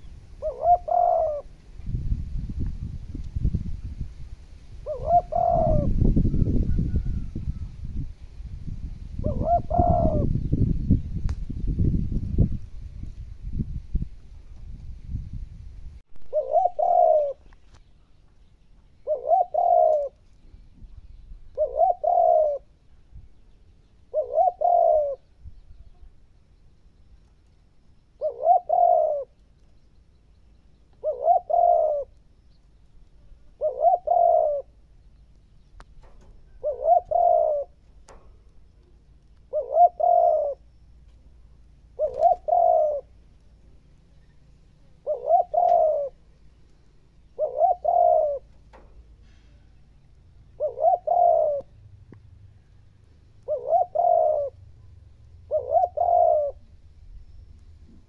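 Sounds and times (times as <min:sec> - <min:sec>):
dove cooing: 0:00.0 - 0:01.6, 0:04.8 - 0:08.0, 0:09.2 - 0:10.7, 0:16.2 - 0:17.6, 0:19.0 - 0:20.3, 0:21.0 - 0:22.8, 0:24.1 - 0:26.1, 0:28.2 - 0:29.4, 0:30.9 - 0:32.2, 0:33.2 - 0:34.8, 0:36.0 - 0:40.8, 0:41.8 - 0:43.3, 0:44.2 - 0:51.8, 0:52.5 - 0:58.0.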